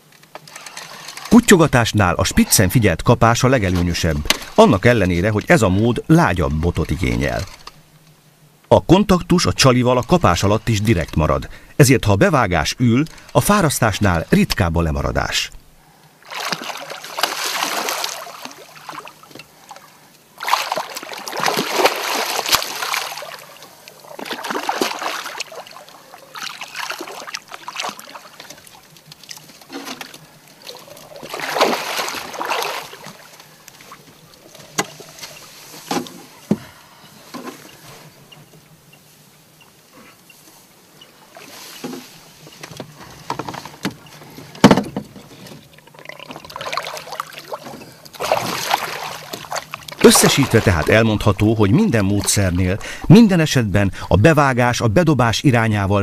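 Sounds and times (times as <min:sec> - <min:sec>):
fish splashing water: 0:15.6 - 0:36.2, 0:45.7 - 0:51.5
knocks on boat: 0:44.6 - 0:45.2.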